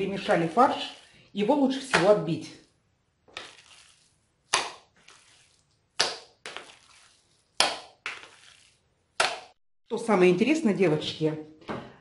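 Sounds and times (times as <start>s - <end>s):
minced meat slapped into plastic bowl: 7.6s - 8.2s.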